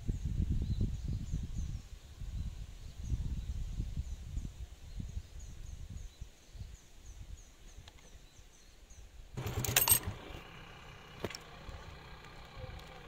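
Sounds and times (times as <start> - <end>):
small bird chirping: 0.1 - 9.2
clinking clatter: 9.4 - 10.3
vehicle engine idling: 9.4 - 13.0.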